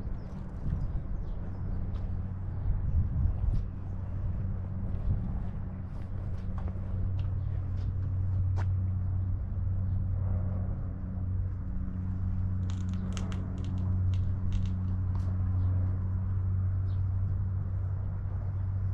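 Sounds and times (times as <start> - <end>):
engine idling hum: 0.0 - 18.9
sharp clicks and crackles: 12.6 - 15.3.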